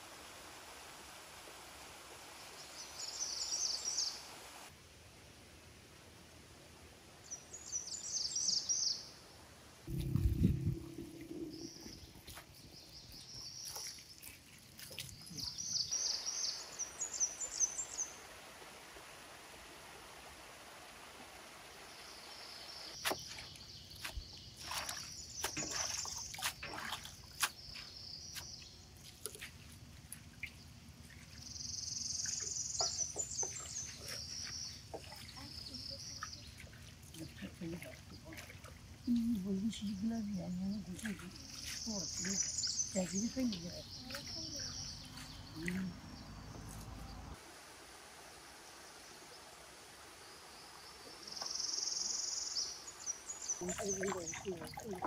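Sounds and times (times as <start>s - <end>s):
songbirds chirping: 2.4s - 4.6s, 7.2s - 9.3s, 9.9s - 18.6s, 21.7s - 47.4s, 48.0s - 55.0s
splashes and knocks washing greens: 11.3s - 15.8s, 23.0s - 31.5s, 32.2s - 39.5s, 40.8s - 47.0s, 53.6s - 55.0s.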